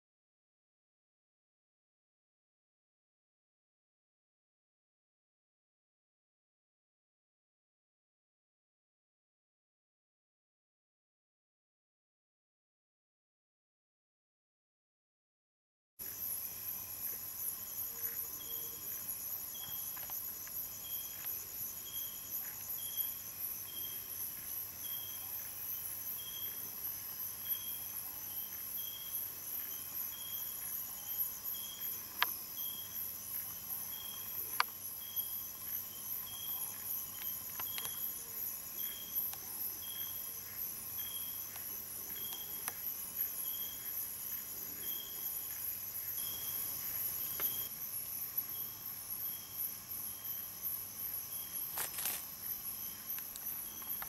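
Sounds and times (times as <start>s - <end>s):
insects trilling: 16.0s - 54.0s
short insect chirp: 16.0s - 54.0s.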